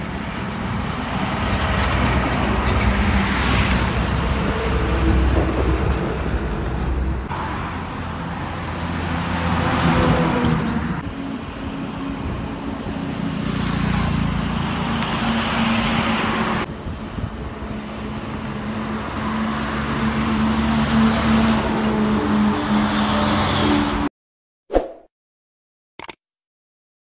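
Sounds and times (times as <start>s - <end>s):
heavy lorry traffic drone: 0.0s - 24.1s.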